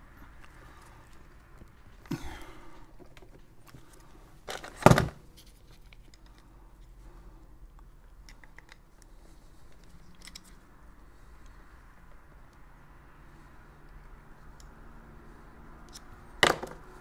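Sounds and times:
light plastic and metal clicks: 7.8s - 10.6s
loud plastic clack: 16.4s - 16.9s.

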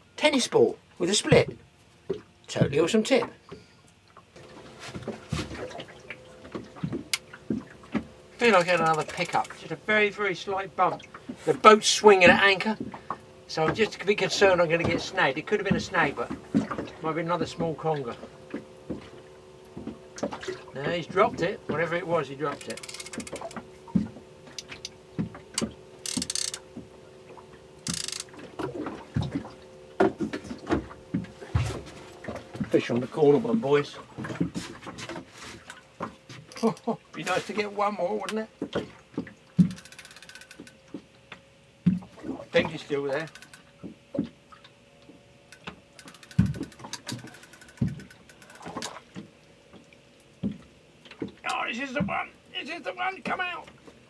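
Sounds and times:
faint steady hum: 0.0s - 54.0s
fishing reel ratchet clicking: 8.6s - 9.6s, 22.6s - 23.6s, 25.6s - 26.6s, 27.8s - 28.3s, 39.7s - 40.8s, 43.2s - 43.7s, 45.5s - 48.7s
rod knocking against boat: 45.6s - 49.3s.

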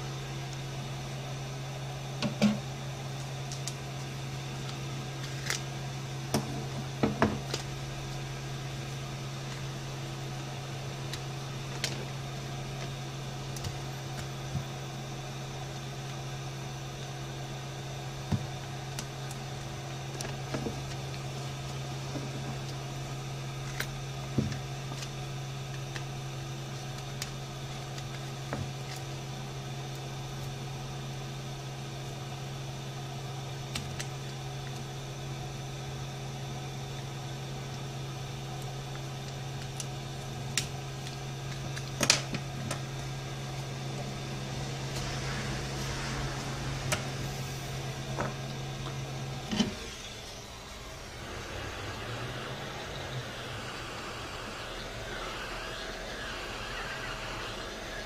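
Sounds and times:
low machine hum: 0.0s - 58.0s.

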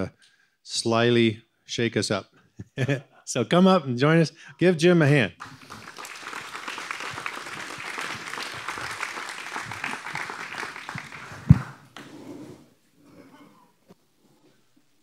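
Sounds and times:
men applauding: 5.4s - 11.8s.

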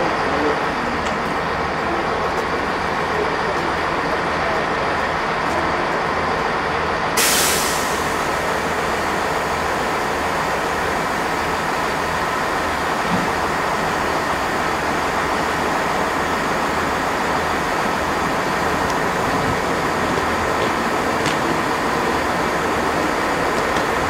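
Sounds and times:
train rumbling: 0.0s - 24.0s
air hissing: 7.2s - 10.1s.

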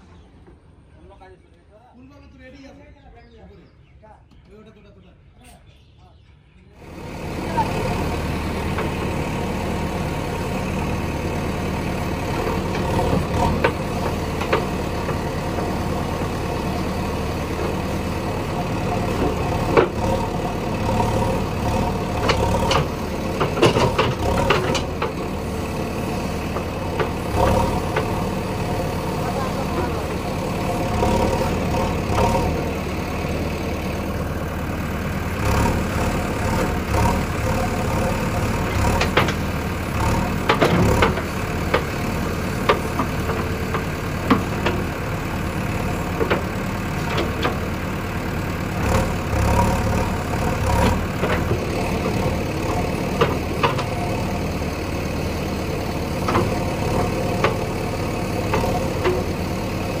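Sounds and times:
heavy diesel engine running: 6.8s - 60.0s.

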